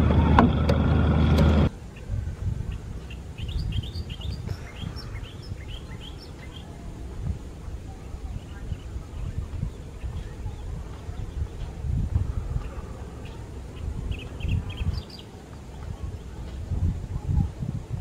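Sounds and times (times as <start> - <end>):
motorboat engine running: 0.0 - 1.7
birds chirping: 0.0 - 18.0.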